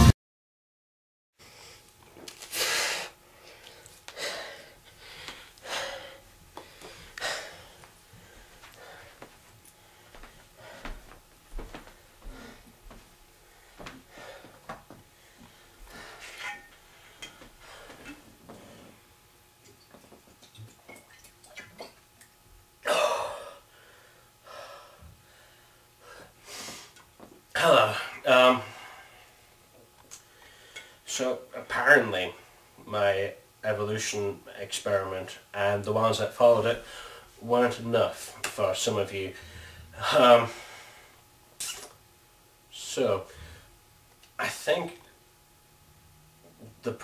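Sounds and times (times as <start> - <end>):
man breathing hard: 2.5 - 11.1, 12.2 - 12.8, 13.4 - 19.0, 22.9 - 27.0, 30.2 - 31.0, 36.8 - 37.3, 39.4 - 41.2
man breathing out: 39.4 - 41.2
man gasping: 39.4 - 41.2.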